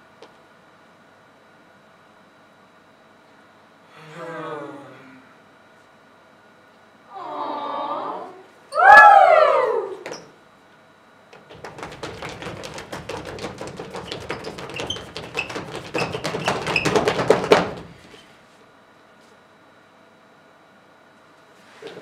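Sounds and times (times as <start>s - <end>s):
body percussion taps: 11.3s - 18.0s.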